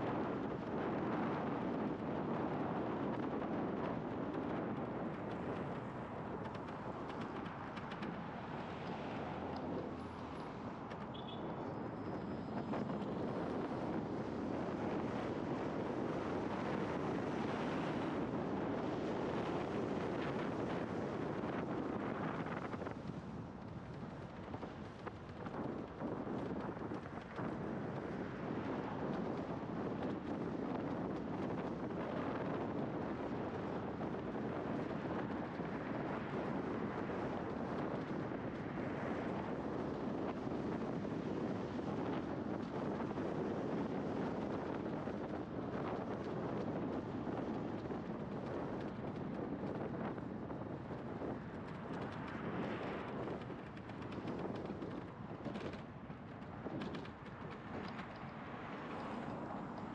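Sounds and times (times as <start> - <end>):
wind rushing over microphone: 0.0 - 59.9
road noise: 3.0 - 28.6, 42.8 - 59.9.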